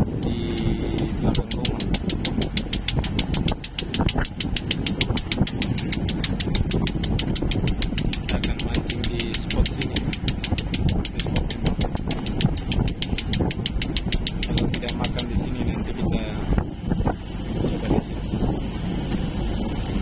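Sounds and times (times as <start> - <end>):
boat engine knocking: 0.0 - 20.0
water rushing: 0.0 - 20.0
wind: 0.0 - 20.0.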